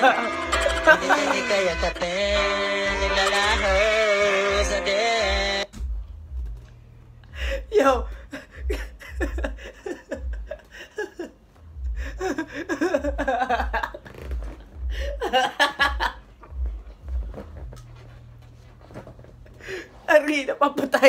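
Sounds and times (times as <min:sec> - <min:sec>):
young man laughing hard: 0:00.0 - 0:04.1, 0:08.3 - 0:14.1, 0:14.9 - 0:16.6.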